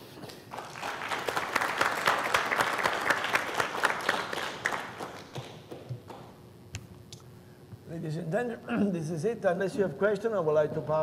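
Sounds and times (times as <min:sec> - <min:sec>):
audience applauding: 0:00.5 - 0:06.3.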